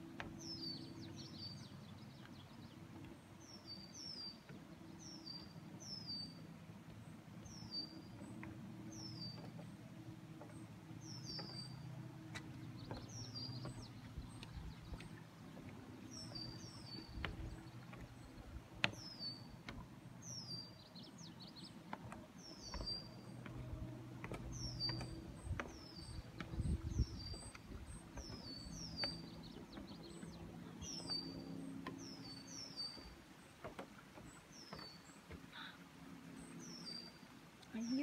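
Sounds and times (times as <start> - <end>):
light knocks: 12.3 - 18.2, 21.9 - 27.6.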